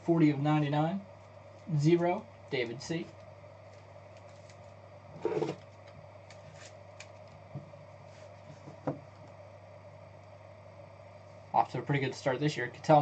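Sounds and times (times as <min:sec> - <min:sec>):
steady low hum: 0:00.0 - 0:13.0
cards rustling: 0:03.7 - 0:07.3.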